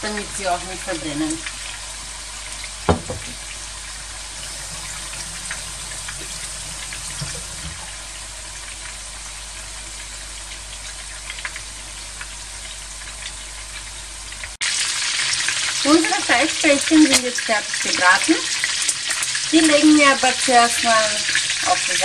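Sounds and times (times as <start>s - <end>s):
meatballs sizzling in oil: 0.0s - 22.0s
sharp knock: 2.9s - 3.4s.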